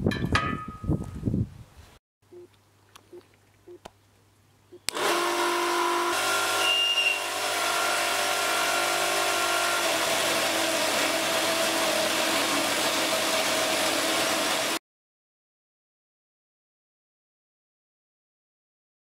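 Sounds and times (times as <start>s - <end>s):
electric chainsaw motor running: 4.9s - 14.8s.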